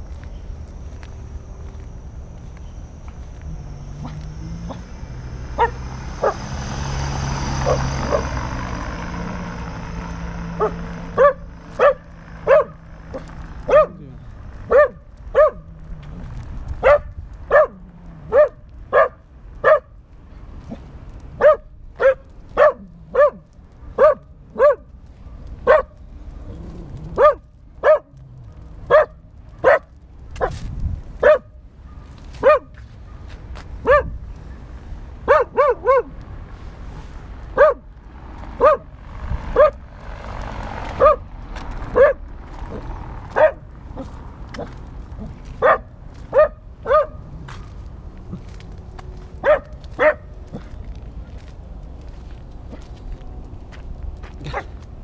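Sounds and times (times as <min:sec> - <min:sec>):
dog barking: 0:05.5 - 0:06.5, 0:07.6 - 0:08.4, 0:10.6 - 0:14.0, 0:14.6 - 0:15.7, 0:16.8 - 0:20.0, 0:21.4 - 0:26.0, 0:27.1 - 0:30.6, 0:31.2 - 0:34.2, 0:35.2 - 0:36.2, 0:37.5 - 0:37.9, 0:38.6 - 0:38.9, 0:39.5 - 0:39.8, 0:41.0 - 0:41.3, 0:41.9 - 0:47.2, 0:49.4 - 0:50.7, 0:54.4 - 0:54.8.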